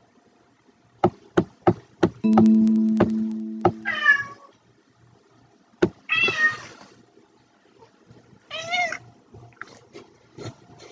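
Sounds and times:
held musical note: 2.2 - 4.0.

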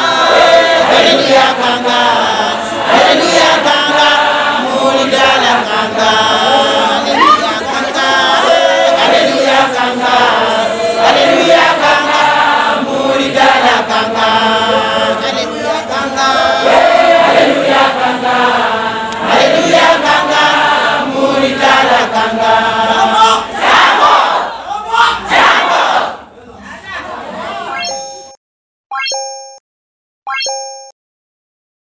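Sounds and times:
congregation singing a hymn: 0.0 - 24.6.

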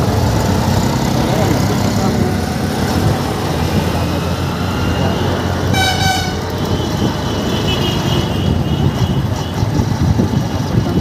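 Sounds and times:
road noise: 0.0 - 11.0
vehicle horn toot: 5.7 - 9.3.

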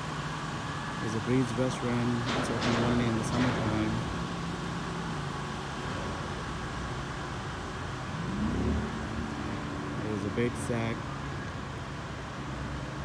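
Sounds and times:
vehicle engine accelerating: 4.4 - 13.0.

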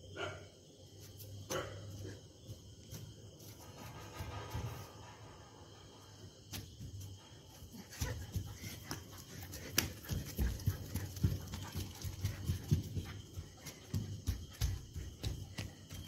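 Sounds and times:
puppy footfalls on concrete: 6.5 - 16.0.

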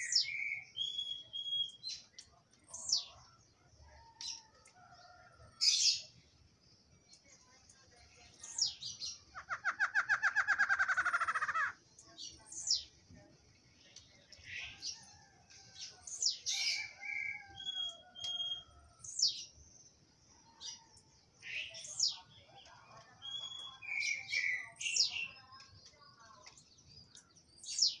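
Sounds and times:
songbirds whistling: 0.0 - 2.0, 8.4 - 11.8, 16.1 - 19.4.

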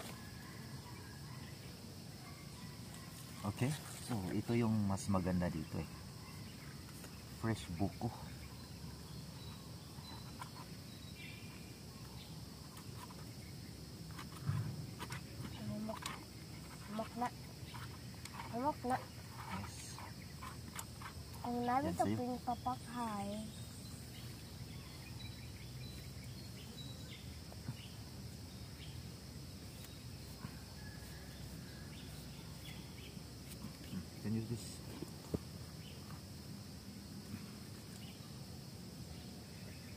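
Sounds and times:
crickets droning: 0.0 - 39.9
insect chirring: 0.0 - 39.9
low outdoor background noise: 0.0 - 39.9.

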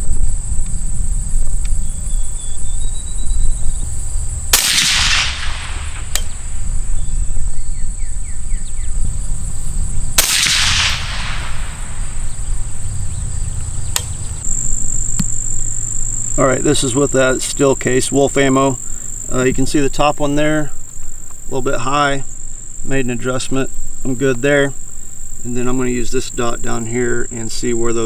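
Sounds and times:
suppressed gunshots with echo: 4.5 - 7.2, 10.1 - 12.9.

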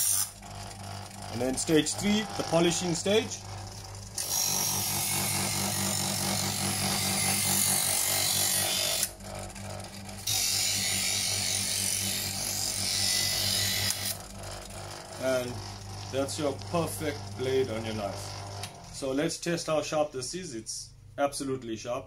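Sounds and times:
knife sharpener motor hum: 0.0 - 19.1
knife blade grinding on discs: 10.2 - 18.0.

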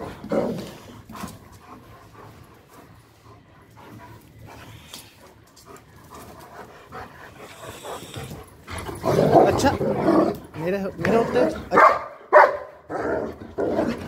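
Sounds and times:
dog panting: 0.0 - 11.8.

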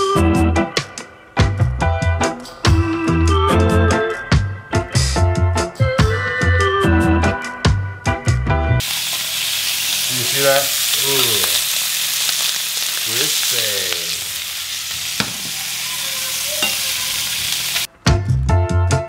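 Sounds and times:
meat sizzling in a frying pan: 8.8 - 17.9.

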